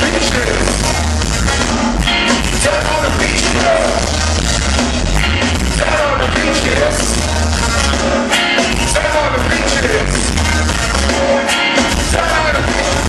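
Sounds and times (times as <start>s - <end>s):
live ska band: 0.0s - 13.0s
person singing: 2.5s - 4.1s, 5.7s - 13.0s.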